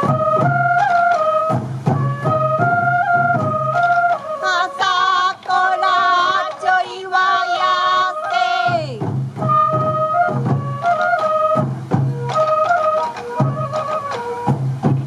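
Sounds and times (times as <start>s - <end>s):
bamboo flute melody: 0.0s - 15.0s
drum beats: 0.0s - 15.0s
person singing with vibrato: 4.4s - 9.0s.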